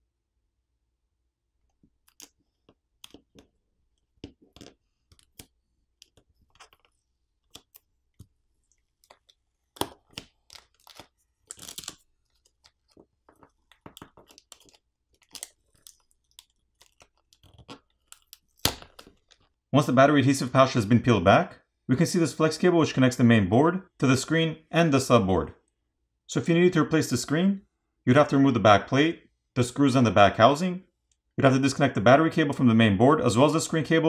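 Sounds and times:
plastic film crinkling: 4.3s - 19.6s.

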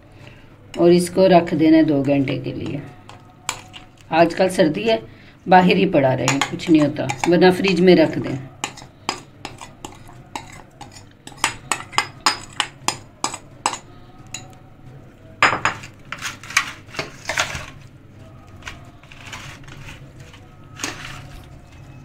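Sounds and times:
spoon scraping a steel bowl: 1.8s - 4.4s, 6.2s - 14.6s, 15.7s - 17.8s, 18.6s - 22.0s
metal spoon tapping a glass bowl: 6.3s - 7.8s, 8.6s - 14.6s.

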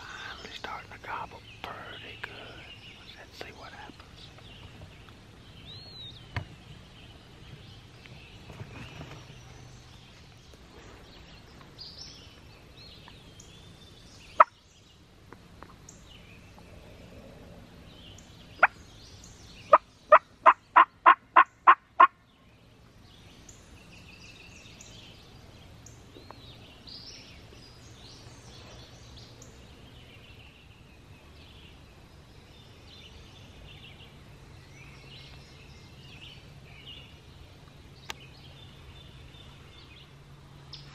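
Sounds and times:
songbirds chirping: 0.0s - 40.9s
turkey clucks: 19.7s - 22.1s
turkey yelping: 20.1s - 22.1s.

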